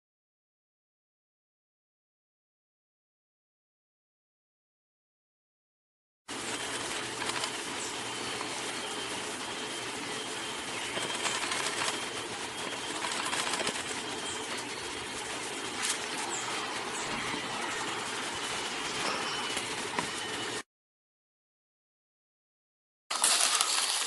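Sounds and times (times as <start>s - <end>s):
steady outdoor hiss: 6.3s - 19.0s.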